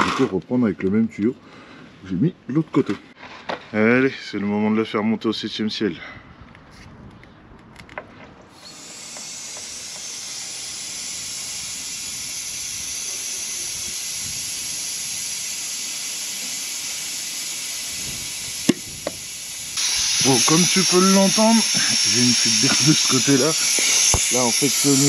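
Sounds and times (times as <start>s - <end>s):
compressed air hissing: 8.6s - 25.0s.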